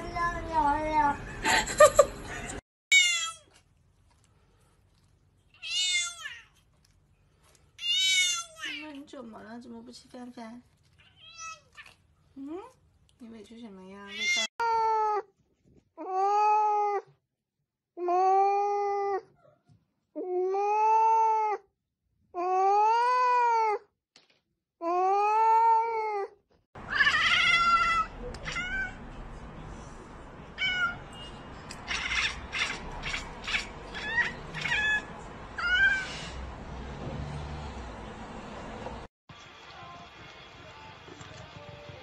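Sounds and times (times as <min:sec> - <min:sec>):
cat meowing: 0:05.6 - 0:06.6, 0:07.8 - 0:08.8, 0:26.9 - 0:29.0, 0:30.6 - 0:31.1, 0:31.8 - 0:36.3
cat chattering: 0:31.7 - 0:36.0.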